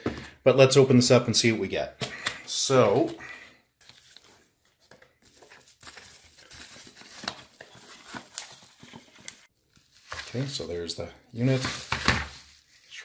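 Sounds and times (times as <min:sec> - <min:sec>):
packaging scraping and rustling: 0:05.2 - 0:13.0.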